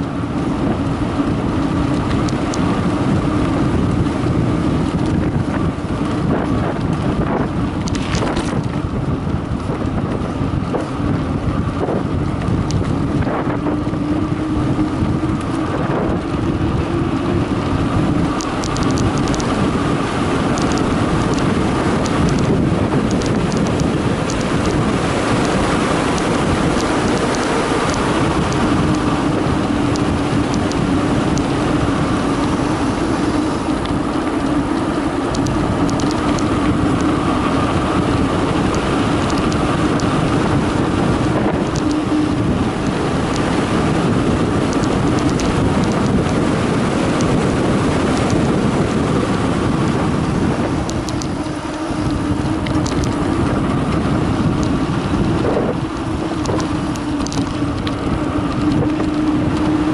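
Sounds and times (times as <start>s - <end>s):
bike tyres humming on concrete: 0.0s - 59.9s
wind on microphone: 0.0s - 59.9s
small rattles and ticks: 4.8s - 10.9s, 17.4s - 31.5s, 32.1s - 37.8s, 38.5s - 46.5s, 50.7s - 59.9s.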